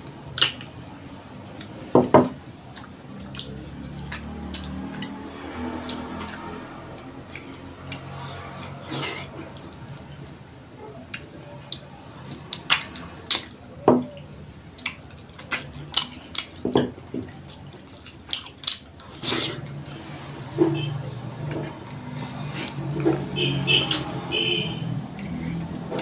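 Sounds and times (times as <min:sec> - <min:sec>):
wet chewing and lip smacks: 0:02.6 - 0:21.2.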